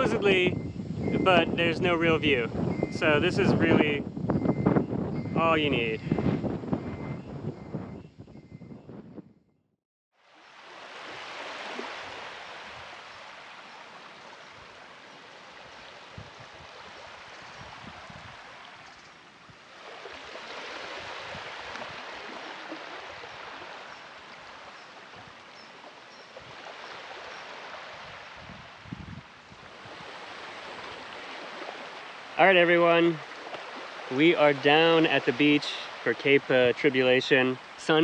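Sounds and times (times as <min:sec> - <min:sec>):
small waves washing onto sand: 0:10.2 - 0:38.0.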